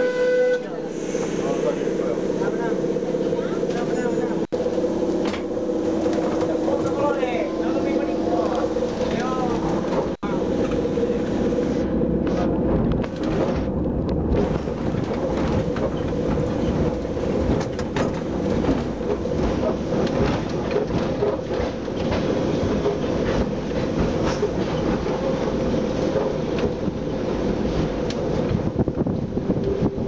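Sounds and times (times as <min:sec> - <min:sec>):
tram rumble and drone: 0:00.0 - 0:30.0
wheels clicking on rails: 0:12.2 - 0:30.0.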